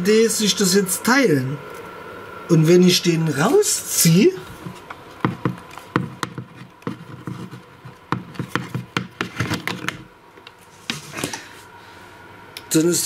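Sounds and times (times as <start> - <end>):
cable handling rubs: 4.4 - 11.4.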